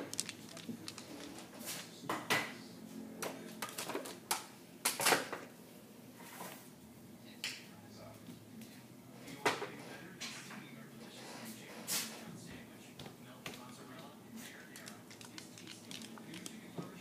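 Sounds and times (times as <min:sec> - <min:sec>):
dog claws clicking on wood floor: 0:00.0 - 0:01.5, 0:13.5 - 0:17.0.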